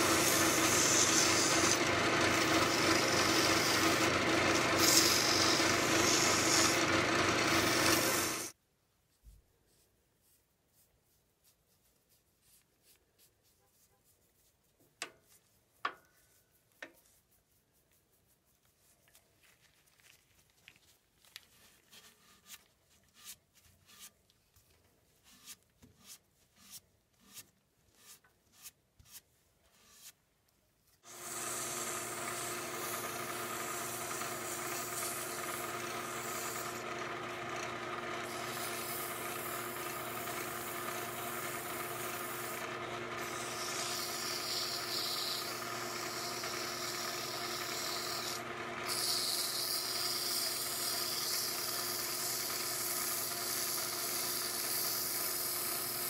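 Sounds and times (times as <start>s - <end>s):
brush rubbing on wood: 0.0s - 1.8s, 9.1s - 30.1s
sandpaper on spinning wood: 0.0s - 8.6s, 31.1s - 37.0s, 38.2s - 56.0s
wood lathe humming: 0.0s - 8.6s, 31.1s - 56.0s.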